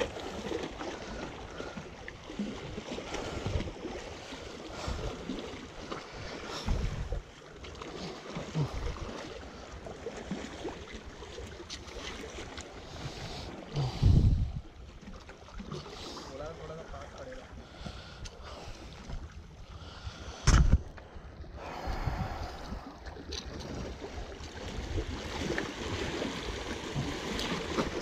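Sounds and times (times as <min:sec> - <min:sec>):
water lapping on rocks: 0:00.0 - 0:28.0
wind buffeting microphone: 0:06.6 - 0:07.3, 0:13.8 - 0:14.8, 0:21.6 - 0:22.9.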